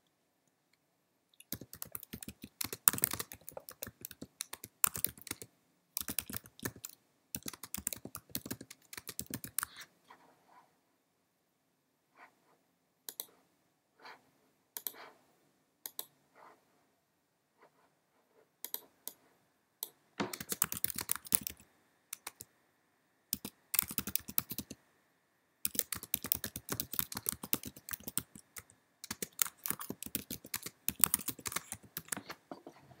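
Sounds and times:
typing on computer keyboard: 0:01.4 - 0:09.7, 0:20.2 - 0:22.5, 0:23.3 - 0:24.8, 0:25.6 - 0:32.3.

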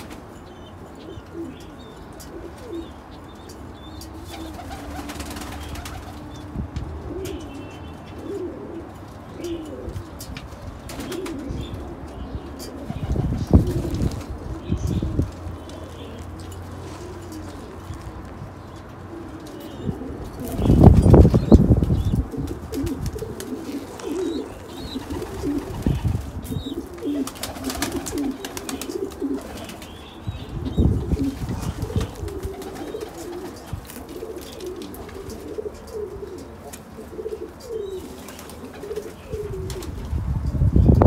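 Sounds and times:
pigeons cooing: 0:00.0 - 0:41.0
wings flapping: 0:04.3 - 0:06.2, 0:25.0 - 0:29.9, 0:31.2 - 0:35.5.

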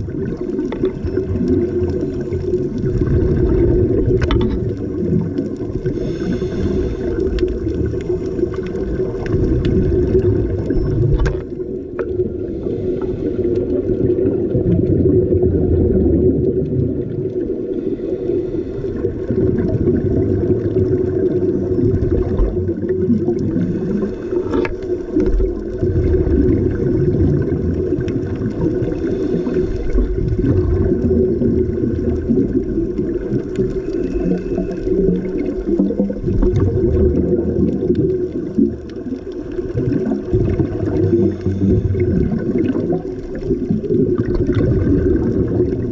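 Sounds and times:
bubbles gurgling: 0:00.0 - 0:45.9
scuba diver breathing underwater: 0:00.1 - 0:11.2, 0:12.0 - 0:15.4, 0:17.3 - 0:45.9.

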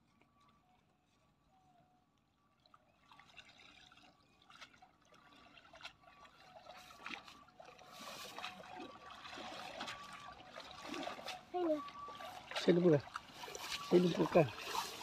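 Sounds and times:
wading splashes: 0:02.5 - 0:15.0
water dripping from net: 0:02.5 - 0:15.0.

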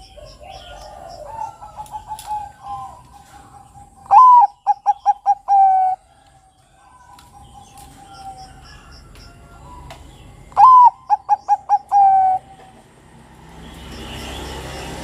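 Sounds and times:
dove cooing: 0:00.0 - 0:06.2, 0:10.5 - 0:12.9.

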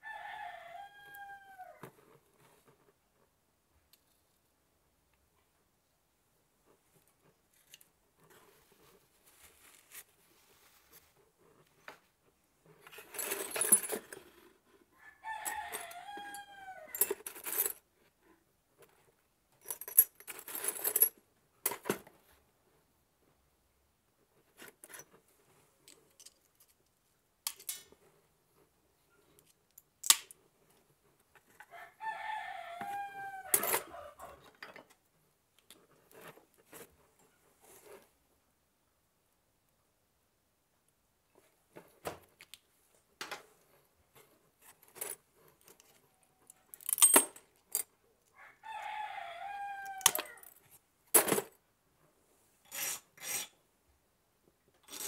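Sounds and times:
metal hand tools set down: 0:12.8 - 0:14.2.

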